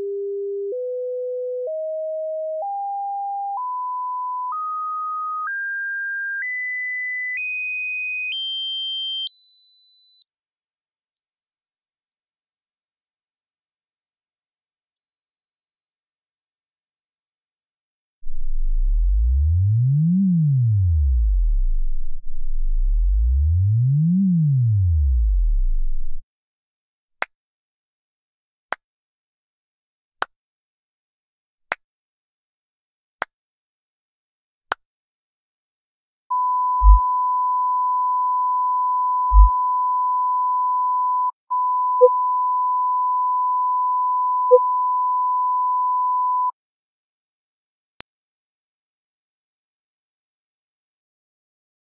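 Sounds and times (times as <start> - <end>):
low bass sine sweeps: 18.3 - 26.2, 36.8 - 37.0, 39.3 - 39.6
short low blips: 18.3 - 26.2, 36.8 - 37.0, 39.3 - 39.6
high-pitched test tone: 36.8 - 37.0, 39.3 - 39.5.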